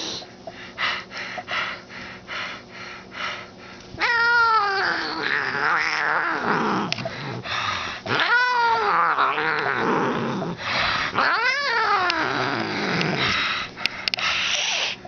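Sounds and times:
cat yowling: 0:04.0 - 0:06.9, 0:08.1 - 0:10.1, 0:11.2 - 0:13.1
cat growling: 0:04.0 - 0:07.4, 0:08.0 - 0:13.4
short noisy puffs: 0:13.2 - 0:15.0.

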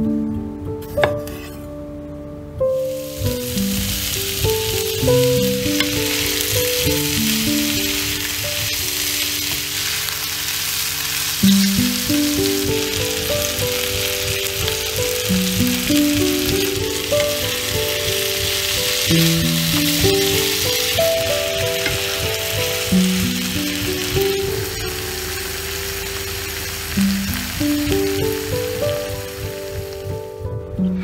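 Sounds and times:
background music: 0:00.0 - 0:31.0
vegetables sizzling in oil: 0:02.9 - 0:30.4.

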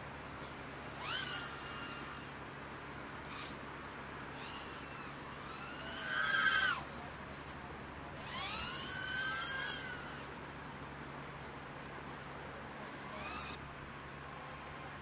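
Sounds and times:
quadcopter motors whining: 0:00.8 - 0:02.4, 0:03.2 - 0:03.6, 0:04.2 - 0:10.4, 0:12.7 - 0:15.0.

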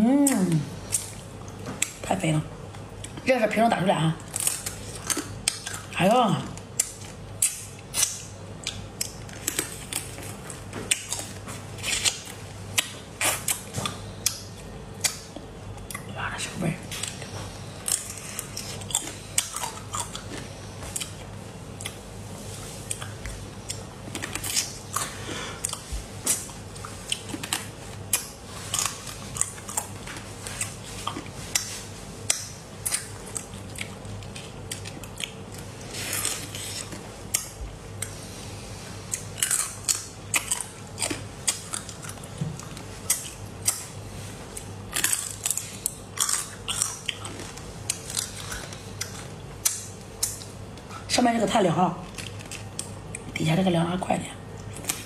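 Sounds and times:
chewing and sucking: 0:16.9 - 0:51.0
crab shells cracking in mouth: 0:39.1 - 0:43.9.

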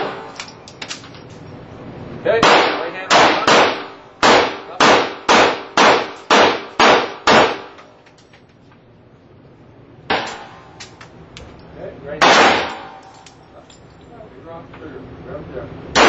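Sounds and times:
pistol shots echoing: 0:02.4 - 0:07.8, 0:10.1 - 0:10.8, 0:12.2 - 0:13.3.

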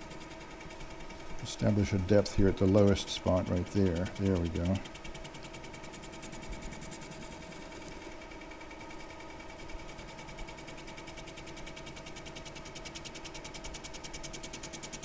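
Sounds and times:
fast ticking of cutting tool: 0:00.0 - 0:08.1.

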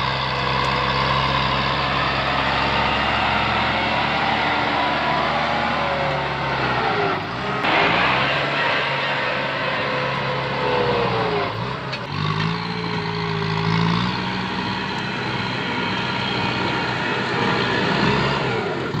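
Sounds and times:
tractor diesel engine under load: 0:00.0 - 0:19.0.

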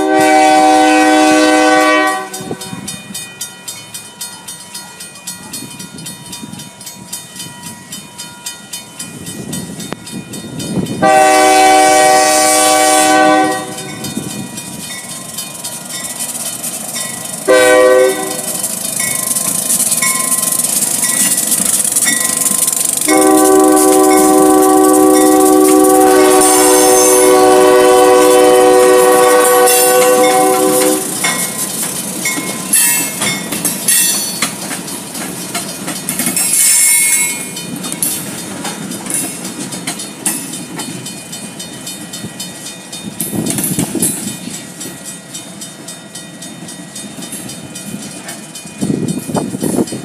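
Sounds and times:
locomotive air horn: 0:00.0 - 0:02.7, 0:11.0 - 0:14.0, 0:17.5 - 0:18.5, 0:23.0 - 0:31.2
train wheels clacking over rail joints: 0:08.2 - 0:50.0.

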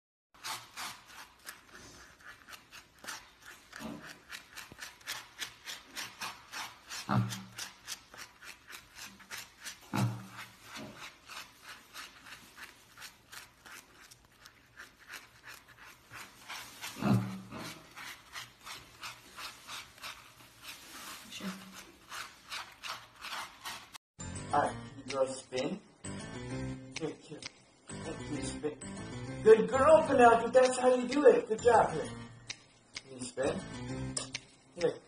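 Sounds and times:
brush scrubbing: 0:00.4 - 0:24.0
piglet grunting: 0:03.4 - 0:04.5, 0:06.9 - 0:07.8, 0:09.8 - 0:11.1, 0:16.8 - 0:18.3.

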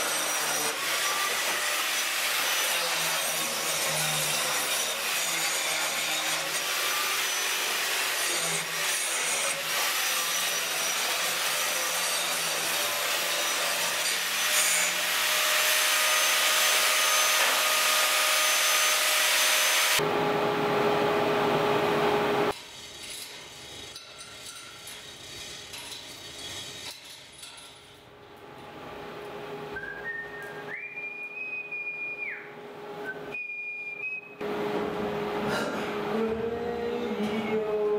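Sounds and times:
angle grinder grinding steel: 0:00.0 - 0:20.0, 0:22.5 - 0:27.8.

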